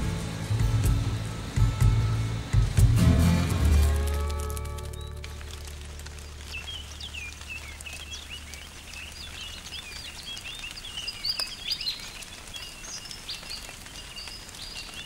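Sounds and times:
low drone: 0.0 - 8.0
small birds chirping: 4.3 - 15.0.

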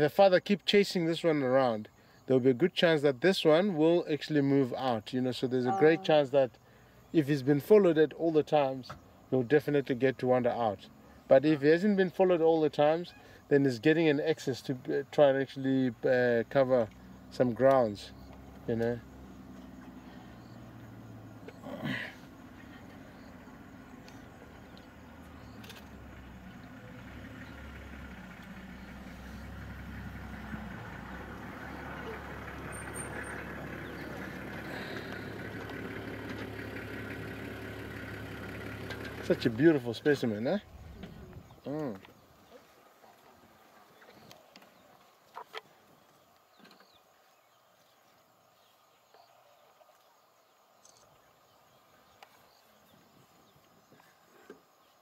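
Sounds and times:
faint outdoor ambience: 0.0 - 55.0
vehicle engine idling: 5.7 - 11.4, 14.6 - 44.8
faint ticks: 16.8 - 18.9, 22.8 - 26.8, 50.0 - 51.2, 52.0 - 52.5.

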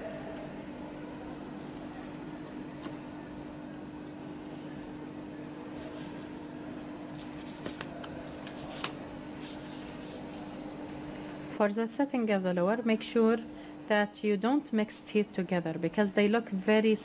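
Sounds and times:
low room hum: 0.0 - 17.0
light clicks and scrapes: 5.7 - 10.5.

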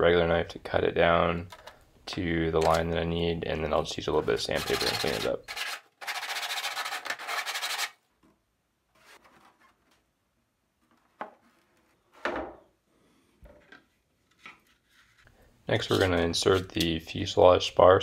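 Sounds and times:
sandpaper rubbing plastic: 4.4 - 8.0.

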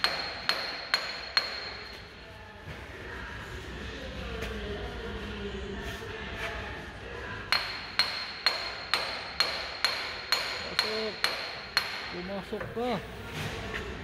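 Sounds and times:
hammer striking metal: 0.0 - 2.0, 7.5 - 12.3.

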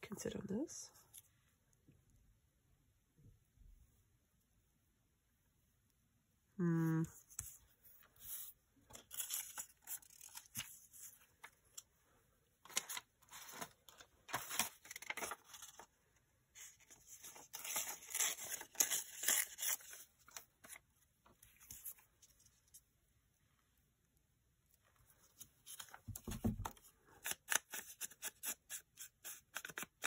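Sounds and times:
paper tearing and rustling: 8.9 - 11.2, 12.6 - 15.9, 16.7 - 20.8, 27.2 - 30.0.

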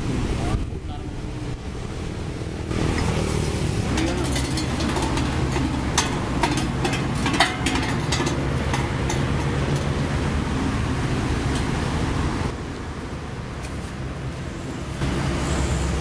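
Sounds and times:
engine running steadily: 0.0 - 16.0
sharp metal clanks: 3.8 - 10.0.

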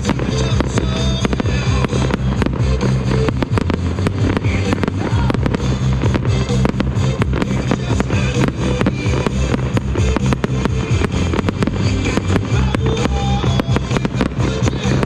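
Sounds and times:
fireworks bursting and crackling: 0.0 - 15.0
loud music: 0.0 - 15.0.

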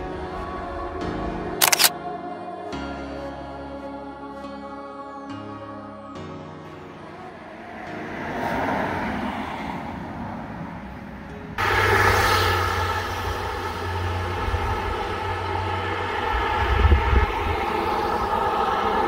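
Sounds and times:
steady engine hum: 7.2 - 19.0
vehicle passing: 7.2 - 19.0.

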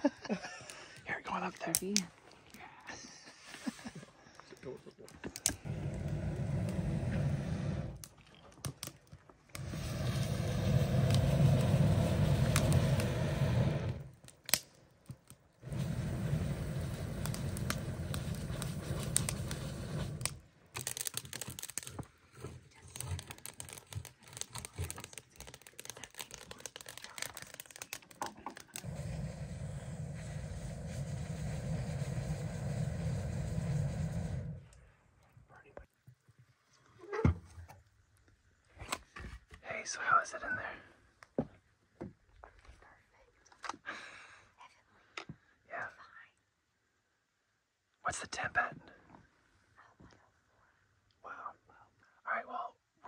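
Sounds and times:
wood fire crackling and rushing: 4.5 - 35.3.

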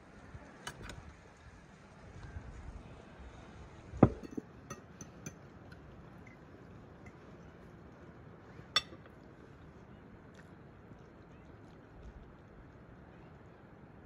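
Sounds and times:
tableware clinking: 4.0 - 5.4, 8.8 - 9.1.

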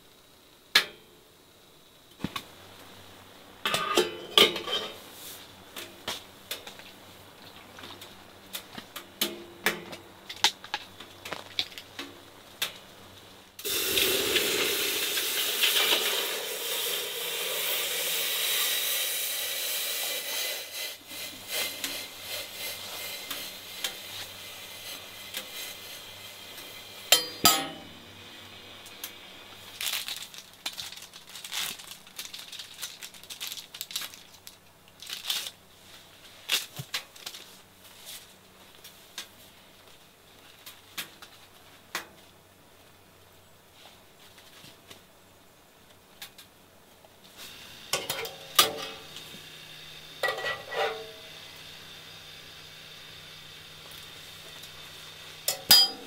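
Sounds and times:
metal clank: 27.1 - 27.9, 50.2 - 51.2, 55.5 - 56.0.

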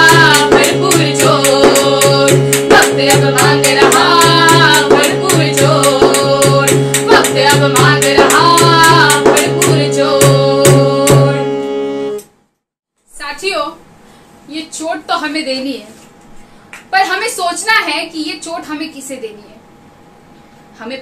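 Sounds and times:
large hand drum beat: 0.0 - 11.3
women singing: 0.0 - 11.6.

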